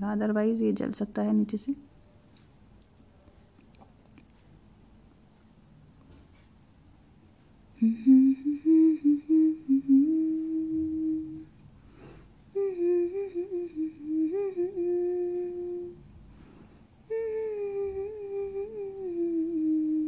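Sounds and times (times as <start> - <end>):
woman humming a tune: 7.8 - 11.5, 12.5 - 16.0, 17.1 - 20.0.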